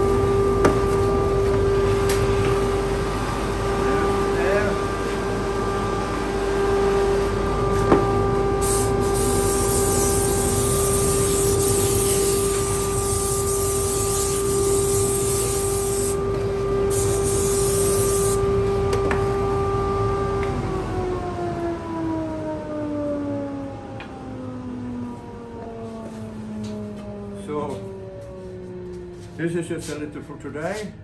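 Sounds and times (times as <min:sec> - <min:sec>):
dust collector humming: 0:00.0 - 0:20.5
air blow gun hissing: 0:08.6 - 0:16.2, 0:16.9 - 0:18.4.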